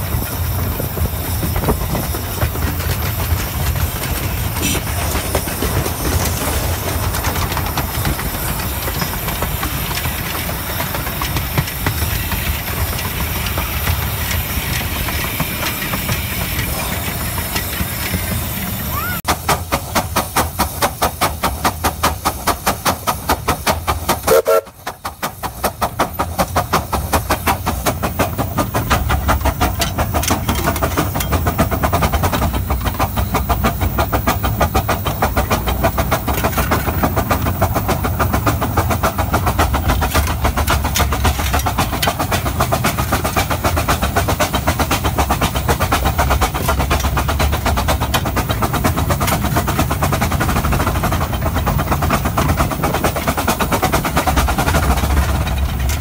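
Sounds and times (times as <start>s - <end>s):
steam locomotive exhaust beats: 0.0s - 56.0s.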